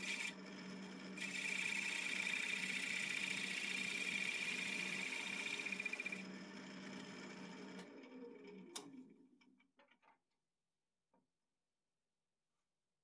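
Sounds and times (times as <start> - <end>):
wood lathe spinning: 0.0 - 8.6
gouge cutting wood: 1.2 - 6.2.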